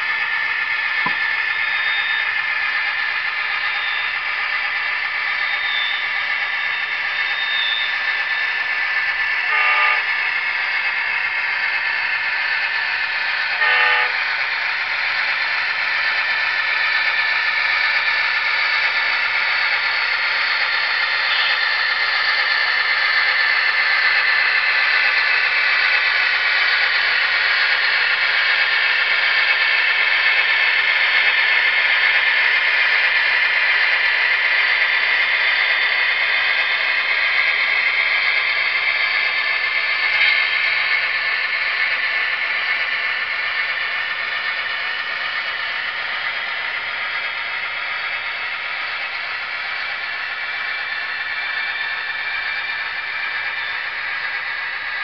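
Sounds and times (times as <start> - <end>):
model locomotive engine sound: 0.0 - 55.0
train horn toots: 9.5 - 10.2, 13.6 - 14.2.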